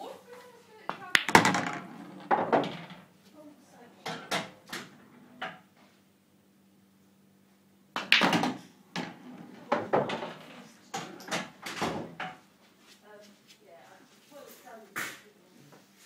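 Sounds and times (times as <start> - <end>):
pool balls knocking: 0.9 - 3.1, 8.0 - 12.4.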